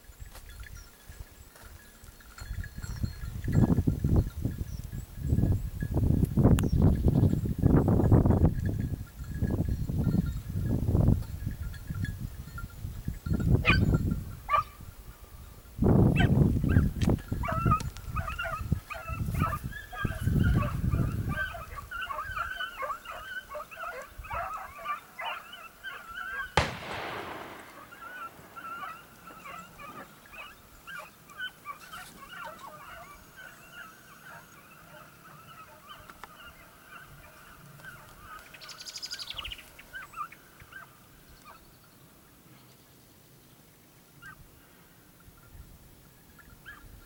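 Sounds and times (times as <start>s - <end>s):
pack of hounds baying: 17.4s - 37.4s
gunshot echoing: 26.6s - 29.8s.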